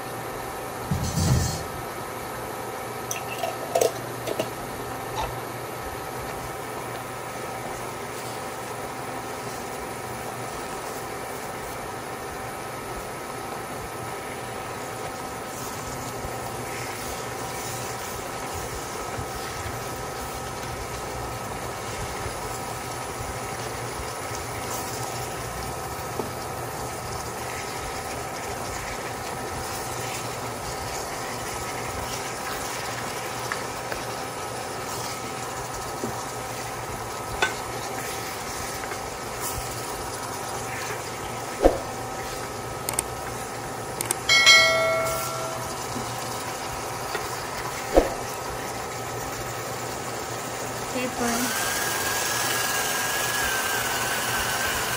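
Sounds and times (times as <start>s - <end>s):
vegetables sizzling in a pan: 0.0s - 54.9s
steady hum: 44.3s - 46.8s.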